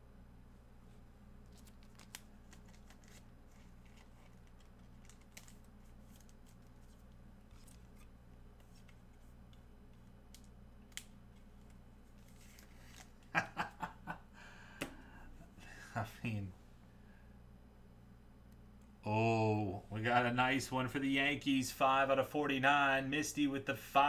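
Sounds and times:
steady low hum: 0.0s - 24.0s
trading cards rustling: 1.4s - 13.3s.

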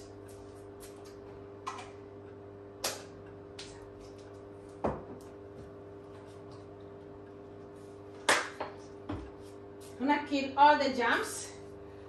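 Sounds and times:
microwave oven humming: 0.0s - 12.0s
items knocking on countertop: 4.8s - 5.2s.

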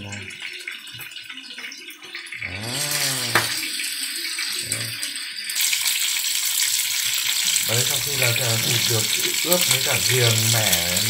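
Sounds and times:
meat frying in a pan: 0.0s - 11.0s
short wordless vocal sounds: 2.4s - 3.6s.

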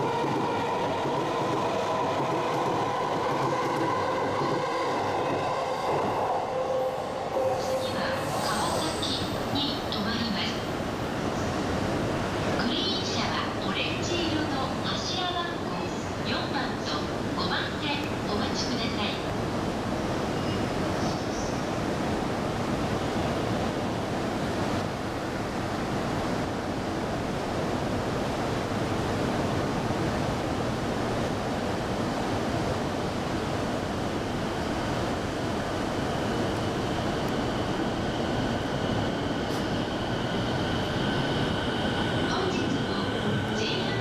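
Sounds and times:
electric train rumbling: 0.0s - 44.0s.

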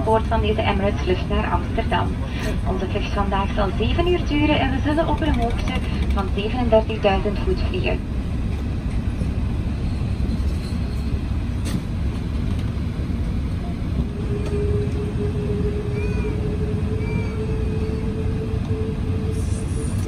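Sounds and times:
aircraft cabin rumble: 0.0s - 20.0s
steady hum: 13.9s - 20.0s.

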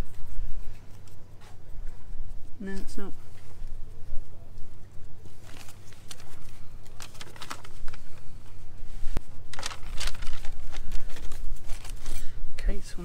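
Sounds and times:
paper rustling: 5.2s - 12.3s.

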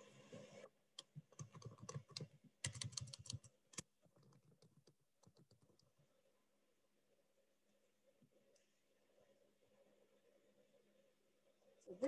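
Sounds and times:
typing on computer keyboard: 1.3s - 5.9s.

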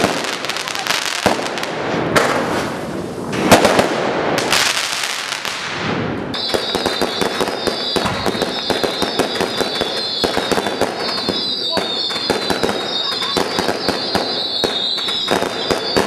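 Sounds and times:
rapid firework pops: 0.0s - 4.8s, 5.4s - 16.0s
firework bangs with crackling: 0.0s - 16.0s
high steady whistle: 6.4s - 16.0s.

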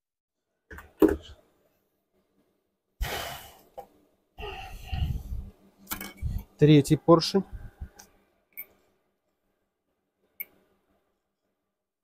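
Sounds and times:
loud breathy rush: 4.4s - 5.5s.

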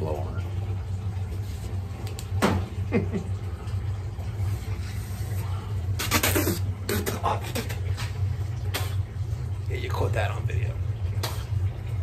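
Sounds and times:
steady low hum: 0.0s - 12.0s
man blowing through a tube: 5.0s - 7.9s.

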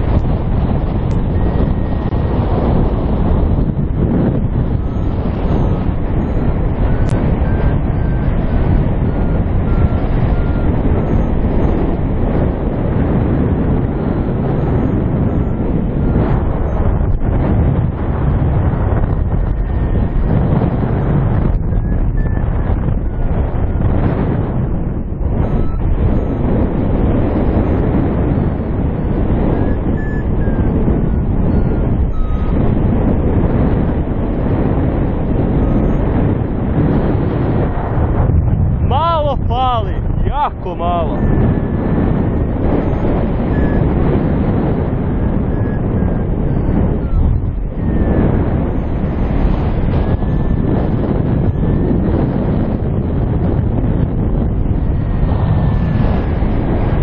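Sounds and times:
wind noise on microphone: 0.0s - 57.0s
variometer beeping: 1.0s - 12.0s, 25.3s - 37.5s, 41.1s - 51.9s
faint short beeps: 29.6s - 30.7s, 43.5s - 43.9s.

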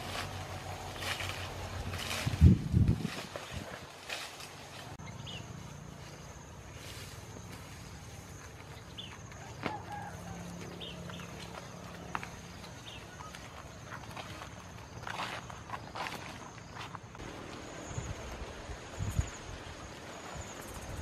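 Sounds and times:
footsteps through tall grass: 0.0s - 19.0s
bird chirps: 5.0s - 5.6s
high insect drone: 5.0s - 21.0s.

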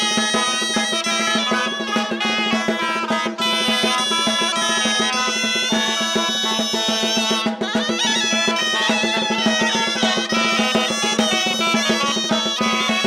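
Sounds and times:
quick percussion beat: 0.0s - 13.0s.

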